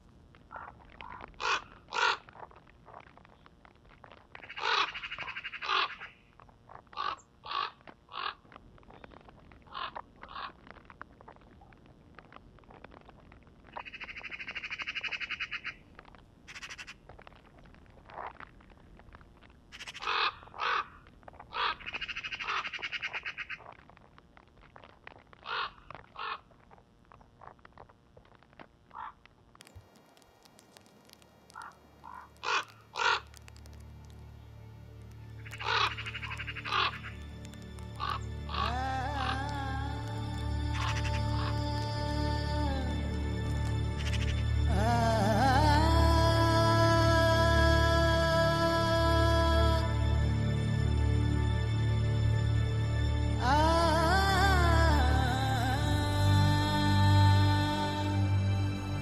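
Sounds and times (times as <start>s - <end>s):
crow cawing: 0.5s - 2.3s, 4.4s - 6.2s, 7.0s - 8.4s, 9.7s - 10.6s, 16.5s - 17.0s, 19.8s - 23.6s, 25.4s - 26.4s, 28.9s - 29.2s, 31.5s - 33.4s, 35.4s - 37.2s, 37.9s - 39.6s, 40.8s - 41.6s
crow rattling call: 0.5s - 2.3s, 4.4s - 6.2s, 6.9s - 8.5s, 9.7s - 10.6s, 13.7s - 15.8s, 16.5s - 17.0s, 19.7s - 23.7s, 25.4s - 26.5s, 28.9s - 29.2s, 31.5s - 33.4s, 35.4s - 37.2s, 38.0s - 39.4s, 40.8s - 41.6s.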